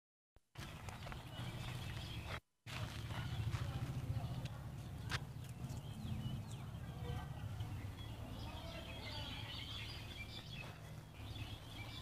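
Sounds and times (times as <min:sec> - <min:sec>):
birds chirping: 0:00.6 - 0:12.0
low outdoor rumble: 0:02.7 - 0:11.8.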